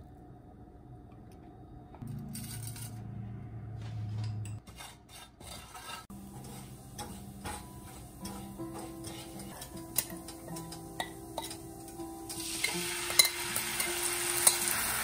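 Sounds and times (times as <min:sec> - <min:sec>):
wooden spatula scraping pan: 0:03.9 - 0:09.8.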